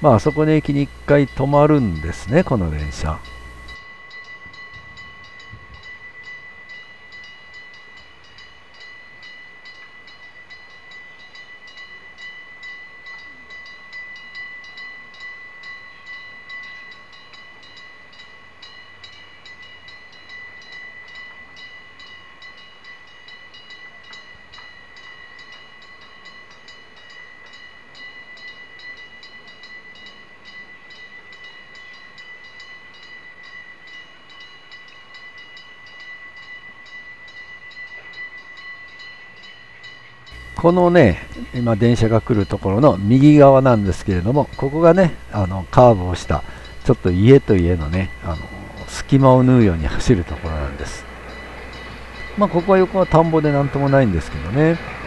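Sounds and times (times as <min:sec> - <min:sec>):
level crossing alarm dinging: 0:00.0 - 0:03.9, 0:40.3 - 0:55.0
electric railcar approaching: 0:00.0 - 0:55.0.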